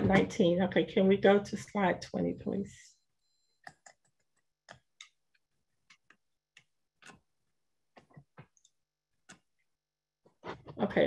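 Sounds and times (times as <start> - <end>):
faint clicks and taps: 3.6 - 7.2, 7.9 - 9.6.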